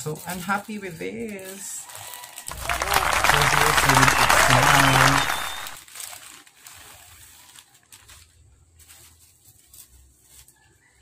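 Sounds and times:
plastic bag crinkling: 1.8 - 9.3
applause: 2.5 - 5.8.

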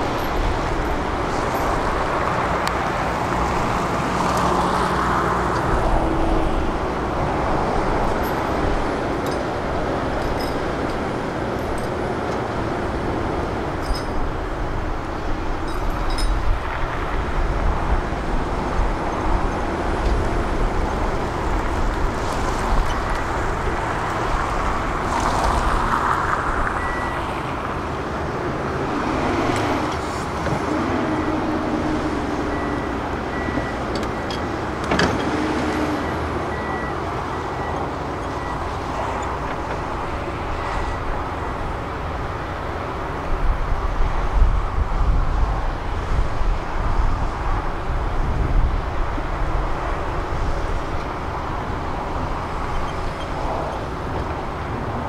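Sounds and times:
heavy diesel machinery running: 26.8 - 43.3.

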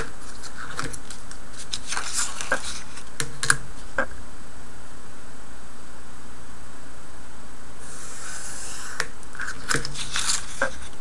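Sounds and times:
steady hiss: 7.2 - 11.0.

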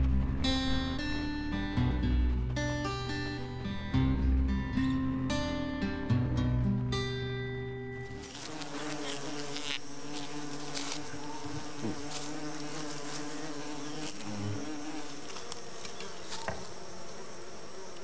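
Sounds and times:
bee flying past: 8.0 - 18.0
bees buzzing: 8.0 - 18.0.

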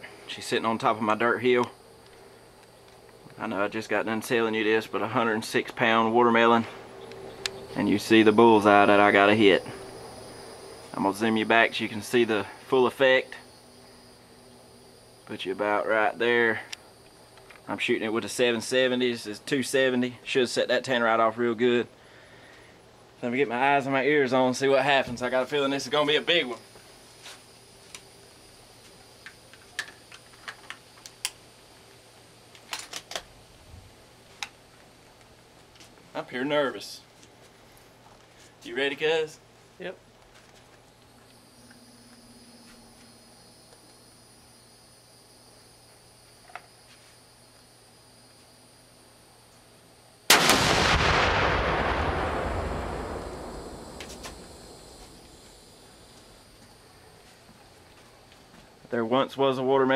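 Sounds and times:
rifle shot: 50.3 - 55.7
very loud explosion blast: 50.3 - 55.8.

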